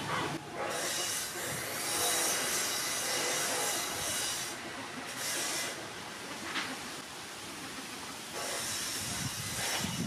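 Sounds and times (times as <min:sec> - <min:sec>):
faint scrape: 0:08.4 - 0:10.0.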